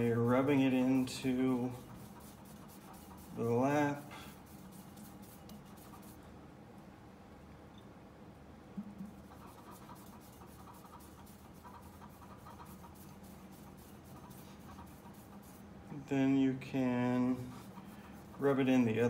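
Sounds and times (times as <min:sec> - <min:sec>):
fingertips scratching on lap: 0:00.0 - 0:06.2, 0:09.0 - 0:15.7, 0:17.2 - 0:19.0
low steady hum: 0:00.0 - 0:19.0.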